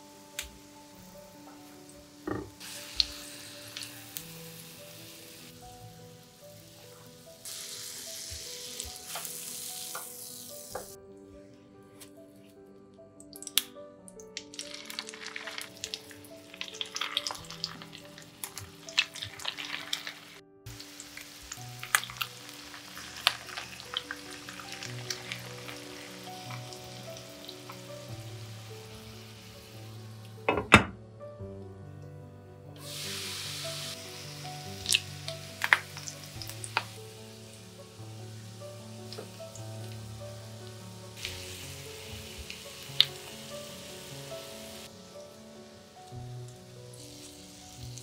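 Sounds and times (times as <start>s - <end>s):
patties sizzling in frying pan: 0.1s - 11.0s, 14.5s - 30.4s, 32.8s - 48.0s
oil popping and crackling: 2.3s - 4.4s, 7.4s - 11.0s, 13.4s - 28.2s, 34.5s - 38.3s, 39.0s - 45.3s.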